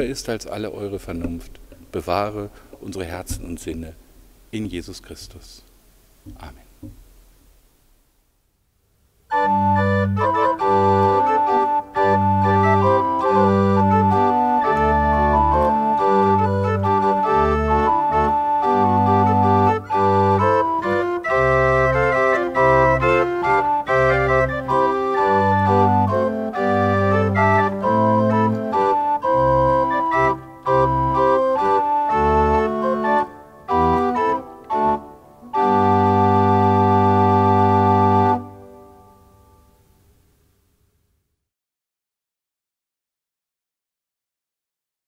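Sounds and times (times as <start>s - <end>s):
pipe organ playing chords: 9.3s - 39.7s.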